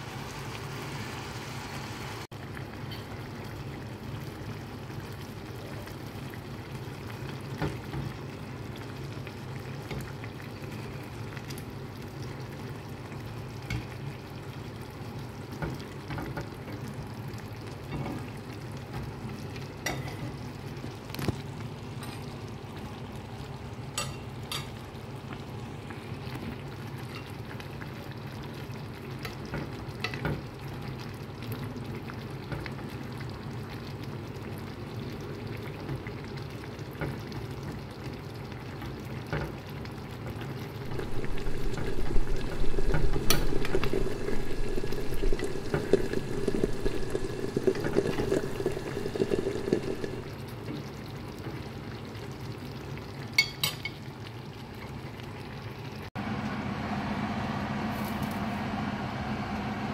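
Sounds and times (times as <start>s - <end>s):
sauce simmering and sizzling: 0.0s - 58.0s
spoon clicking on pan: 53.4s - 54.0s.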